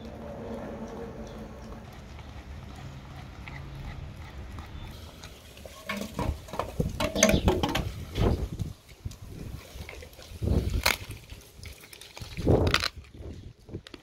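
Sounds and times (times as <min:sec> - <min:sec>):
dog chewing bones: 0:00.0 - 0:07.8.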